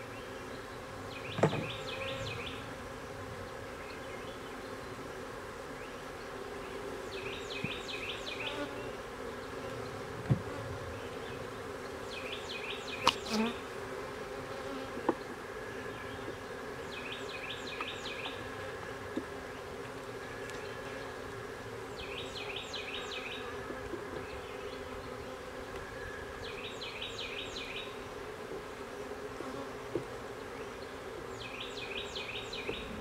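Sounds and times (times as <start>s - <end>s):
bees buzzing: 0.0s - 33.0s
knocks on wooden frames: 1.4s - 1.8s.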